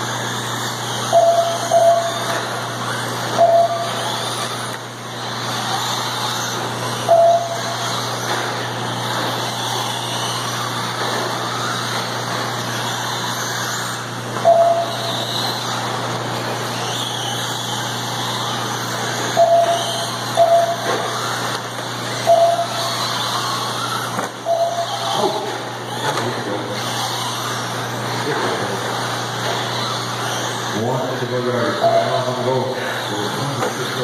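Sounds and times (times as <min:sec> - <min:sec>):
toy cars whirring: 0:00.0 - 0:34.0
short beep: 0:07.1 - 0:07.6, 0:14.5 - 0:15.0, 0:22.3 - 0:22.8.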